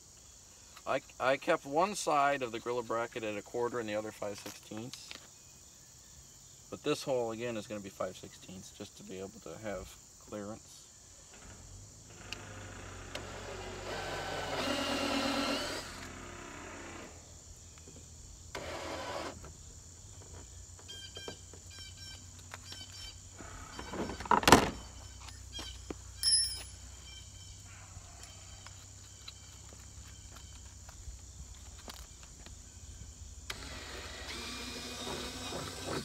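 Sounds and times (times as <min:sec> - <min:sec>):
cordless drill whining through plastic: 0:12.1 - 0:17.2, 0:18.5 - 0:19.5, 0:33.5 - 0:36.0
sharp clink: 0:26.2 - 0:26.9.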